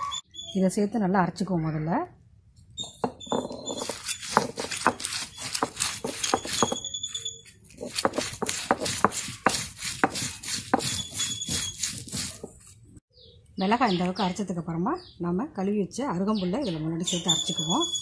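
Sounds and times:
stone roller grinding on stone: 0:02.8 - 0:12.8.

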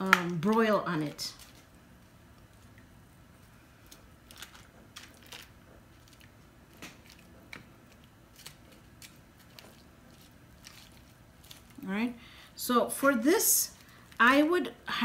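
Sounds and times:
soft squishes of chicken pieces: 0:02.4 - 0:11.8.

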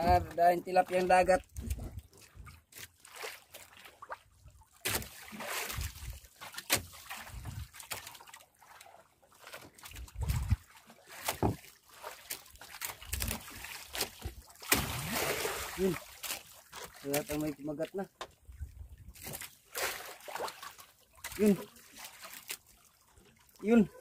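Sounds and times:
water splashing against boat hull: 0:00.0 - 0:24.0
knocks and bumps from boat: 0:09.5 - 0:10.6, 0:11.2 - 0:11.8.

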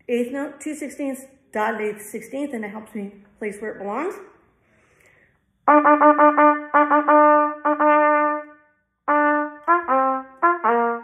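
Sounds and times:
trumpet playing tongued notes: 0:05.7 - 0:11.0.

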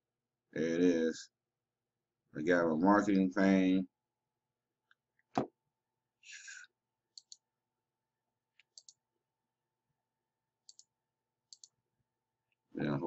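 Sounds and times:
computer mouse clicks: 0:07.1 - 0:07.4, 0:08.6 - 0:09.0, 0:10.6 - 0:10.9, 0:11.5 - 0:11.8.

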